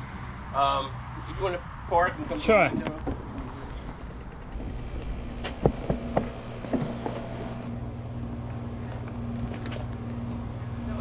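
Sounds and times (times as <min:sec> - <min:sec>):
sharp clicks and knocks: 0:02.7 - 0:07.7
low machine hum: 0:03.1 - 0:11.0.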